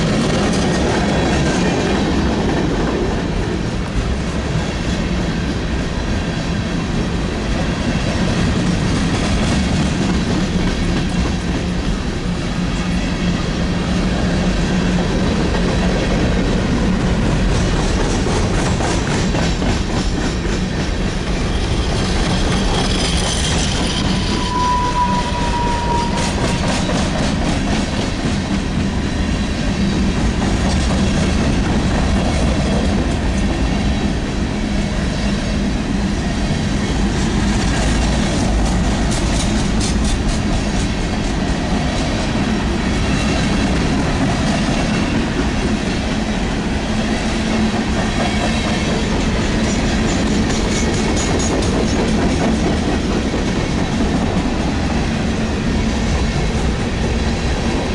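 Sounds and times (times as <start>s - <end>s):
clickety-clack over rail joints: 0.0s - 35.3s, 36.2s - 57.9s
train wheels rumbling on rail: 0.0s - 57.9s
high wheel squeal: 21.5s - 26.5s.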